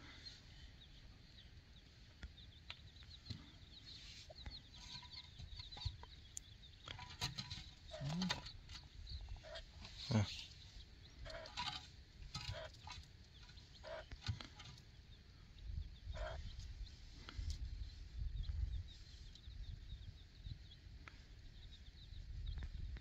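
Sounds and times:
chicken clucking: 4.2s - 10.4s, 11.2s - 14.8s.

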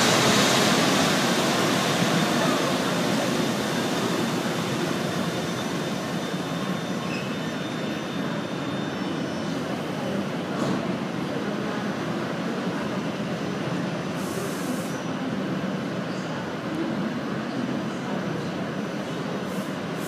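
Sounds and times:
train running noise: 0.0s - 15.6s.

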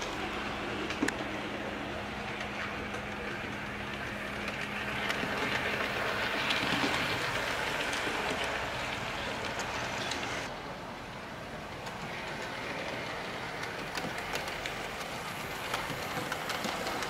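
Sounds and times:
model train motor whirring: 0.0s - 10.5s, 11.8s - 17.0s.

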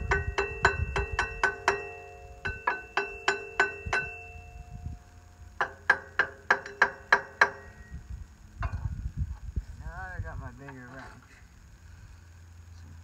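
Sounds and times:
metal strikes ringing: 0.0s - 5.0s, 5.6s - 8.0s.

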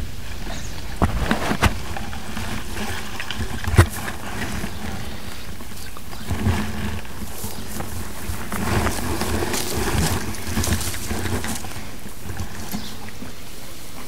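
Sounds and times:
light rustling: 0.0s - 14.0s
wind buffeting microphone: 0.0s - 14.0s.

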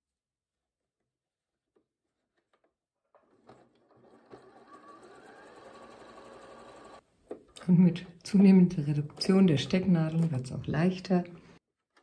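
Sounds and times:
sewing machine stitching: 3.1s - 7.0s.

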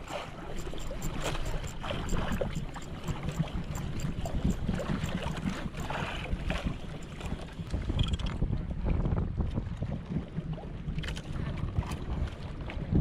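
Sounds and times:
fast regular ticking: 0.0s - 6.1s
wind buffeting microphone: 0.0s - 13.0s.

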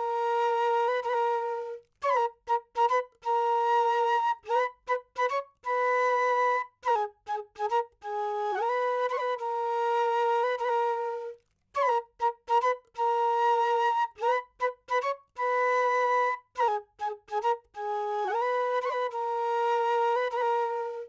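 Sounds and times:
solo flute melody: 0.0s - 21.0s.

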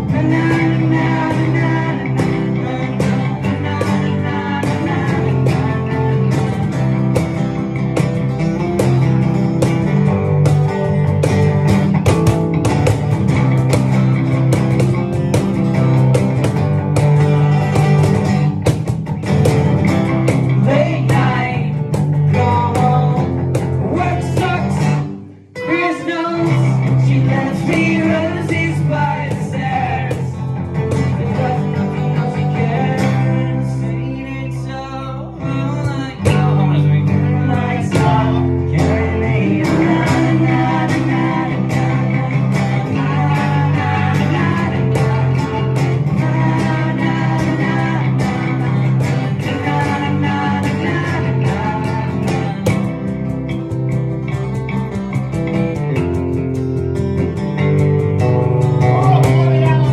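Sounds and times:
person singing: 0.0s - 7.2s, 20.4s - 53.1s, 58.8s - 59.9s
acoustic guitar strumming: 0.0s - 59.9s.

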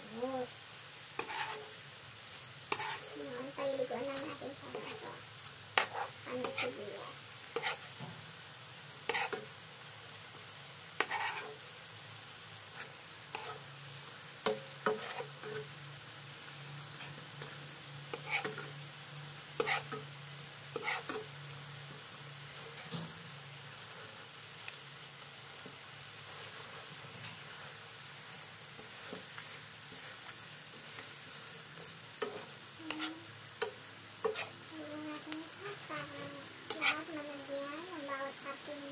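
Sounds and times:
fish sizzling in sauce in a pan: 0.0s - 38.9s
metal spoon scraping a pan: 1.2s - 1.8s, 2.7s - 3.2s, 3.8s - 5.0s, 5.8s - 6.8s, 7.4s - 8.0s, 9.0s - 9.5s, 11.0s - 11.6s, 12.7s - 13.7s, 14.4s - 15.7s, 16.9s - 18.8s, 19.6s - 20.1s, 20.7s - 21.3s, 22.5s - 23.2s, 28.7s - 37.1s.

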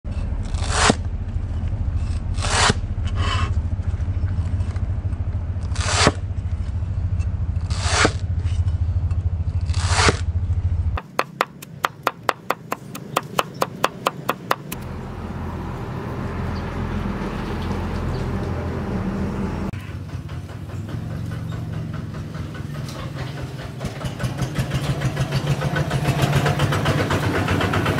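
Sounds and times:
low rumble: 0.1s - 11.0s
cleaver scraping on chopping block: 0.4s - 1.0s, 2.0s - 3.5s, 5.7s - 6.2s, 7.6s - 8.2s, 9.6s - 10.2s, 11.0s - 14.8s
rapid knife chopping: 11.0s - 14.8s.

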